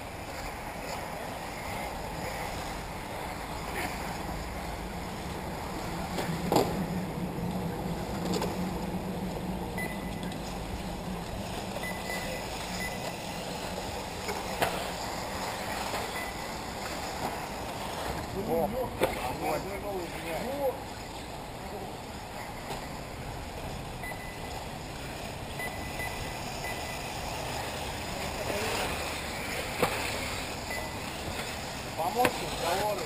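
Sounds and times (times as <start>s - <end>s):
rc car motors and tyres hissing: 0.0s - 33.0s.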